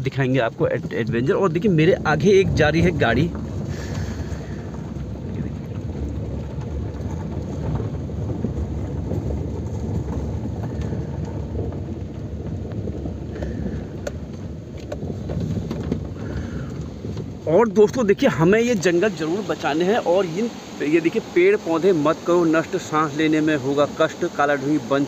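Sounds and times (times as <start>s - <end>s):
vehicle rumbling along a road: 0.0s - 25.0s
wind buffeting microphone: 0.0s - 25.0s.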